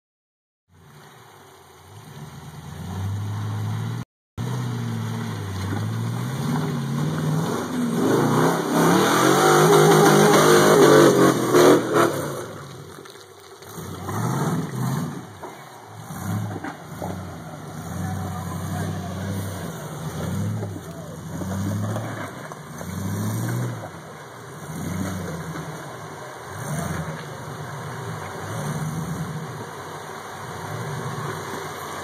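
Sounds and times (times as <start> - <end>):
engine revving in bursts: 5.9 - 12.6.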